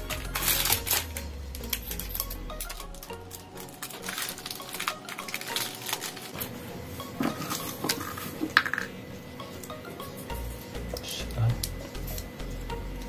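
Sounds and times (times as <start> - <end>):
scissors snipping paper: 0.0 - 6.5
paper crinkling: 0.0 - 6.6.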